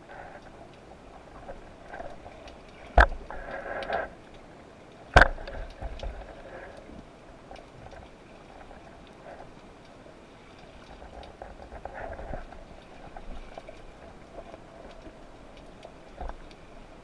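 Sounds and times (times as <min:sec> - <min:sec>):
faint crackling: 0:00.0 - 0:17.0
sharp underwater knocks: 0:02.9 - 0:03.3, 0:05.1 - 0:06.2.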